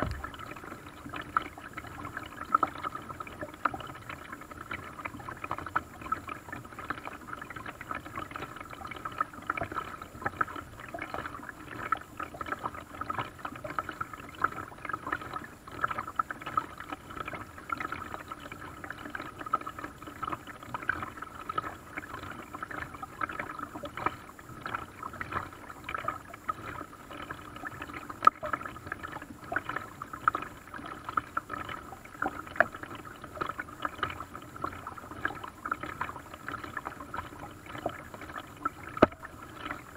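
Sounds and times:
water splashing against boat hull: 0.0 - 6.3, 6.9 - 39.9.

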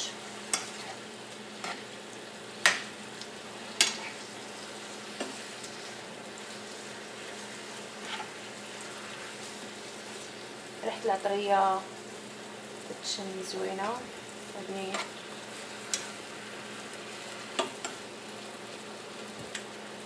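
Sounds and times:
chicken sizzling in frying pan: 0.0 - 20.0
utensil clicking against pan: 15.9 - 16.1.

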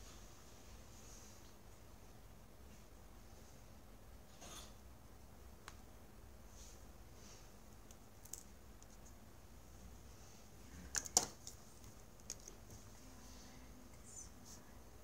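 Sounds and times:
pen and objects clicking on desk: 10.9 - 12.8.

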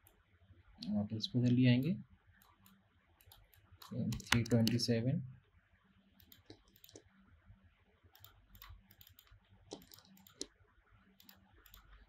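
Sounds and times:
computer mouse clicks: 2.4 - 4.8, 6.2 - 7.1, 8.1 - 10.6, 11.2 - 12.0
keyboard keys clicking: 3.2 - 4.8, 8.2 - 10.5.

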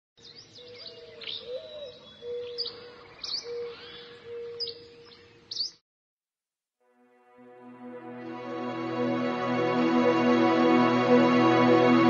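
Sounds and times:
birds chirping: 0.2 - 5.8.

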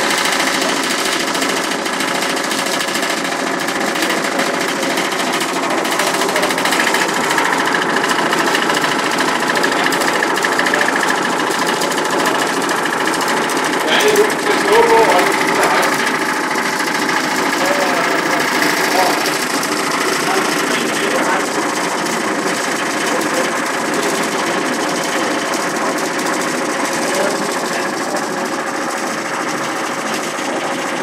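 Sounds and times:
fast buzzing metal rattle: 0.0 - 31.0.

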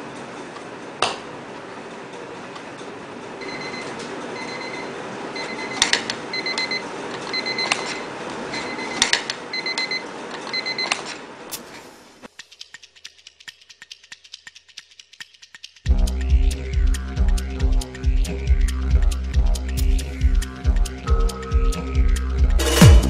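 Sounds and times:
alarm clock beeping: 3.4 - 7.8, 8.6 - 10.9.

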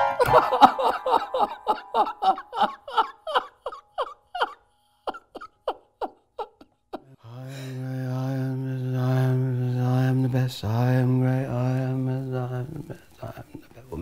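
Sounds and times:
man gasping: 7.2 - 7.9.

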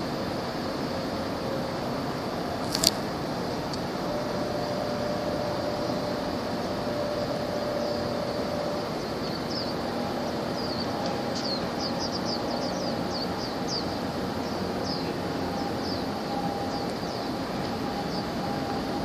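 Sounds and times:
faint engine hum: 0.0 - 19.0
ship rumble: 0.0 - 19.0
small bird chirping: 7.7 - 19.0.

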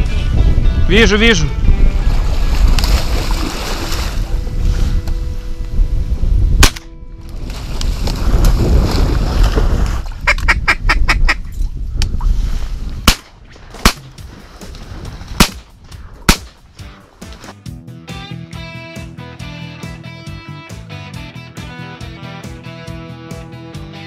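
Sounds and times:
shotgun shots: 6.6 - 6.9, 13.0 - 14.1, 15.4 - 15.7, 16.3 - 16.6.

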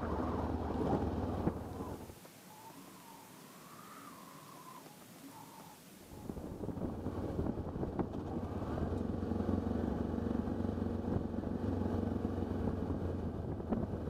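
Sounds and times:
motorcycle engine running: 6.3 - 14.0.

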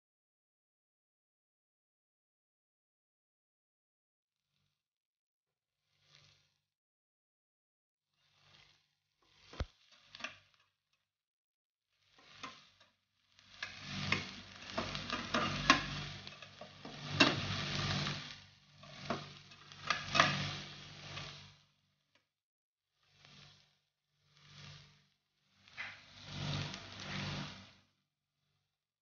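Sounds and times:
metal spatula scraping a pan: 8.2 - 10.6, 12.0 - 21.6, 25.7 - 27.8
vegetables sizzling: 8.2 - 10.6, 12.0 - 21.7, 23.1 - 27.8.

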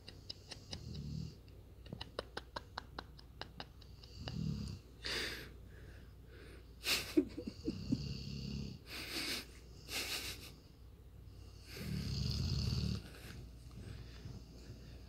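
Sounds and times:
dog snoring: 11.6 - 13.3.

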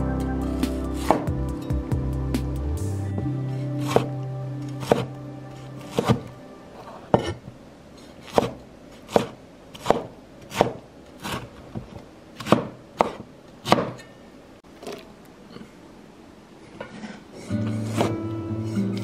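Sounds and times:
knife chopping on wooden board: 3.8 - 4.1, 4.8 - 5.1, 5.8 - 6.3, 8.2 - 14.0.

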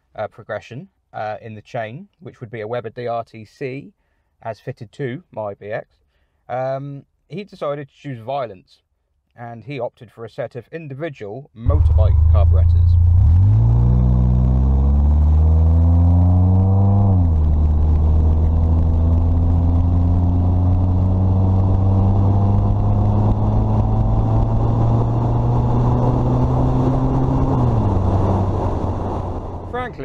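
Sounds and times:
car engine accelerating: 11.6 - 30.0.

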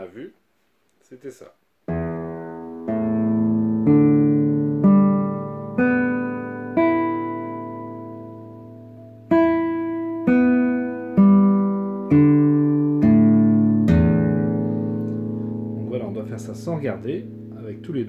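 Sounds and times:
guitar strings plucked: 1.9 - 18.0.

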